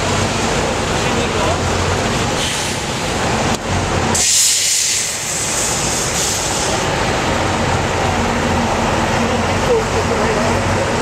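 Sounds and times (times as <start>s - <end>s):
diesel truck engine humming: 0.0s - 11.0s
loud hiss: 4.1s - 7.1s.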